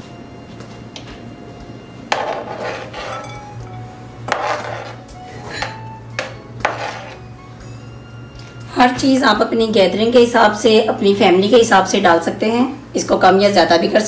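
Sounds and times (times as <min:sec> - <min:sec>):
soft background music: 0:00.0 - 0:14.0
metal spoon scraping cutting board: 0:02.2 - 0:03.4, 0:04.3 - 0:05.0, 0:06.6 - 0:07.2.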